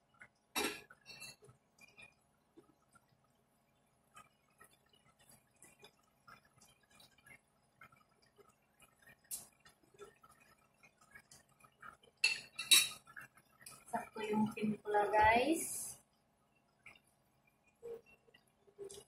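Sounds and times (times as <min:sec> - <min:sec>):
stew simmering with small pops: 0:00.0 - 0:19.0
metal utensils clinking: 0:12.2 - 0:13.1
metal spoon dipping into pot: 0:12.2 - 0:13.2.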